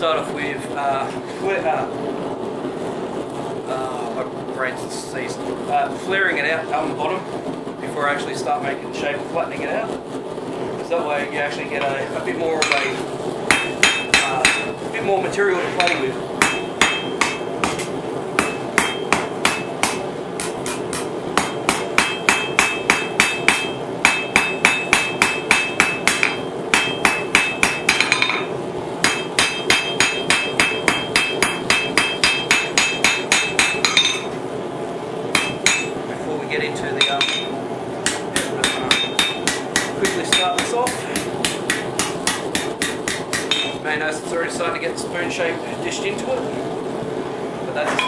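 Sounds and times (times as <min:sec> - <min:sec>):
steady background hum: 0:00.0 - 0:48.0
hammer striking metal on anvil: 0:12.6 - 0:14.8, 0:15.8 - 0:34.4, 0:35.4 - 0:36.0, 0:37.0 - 0:43.8.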